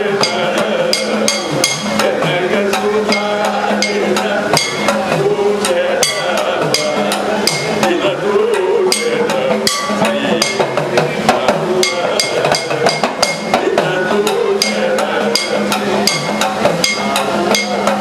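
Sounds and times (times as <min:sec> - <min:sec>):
elderly man singing: 0:00.0 - 0:18.0
small gong struck with stick: 0:03.0 - 0:05.2, 0:08.9 - 0:10.9.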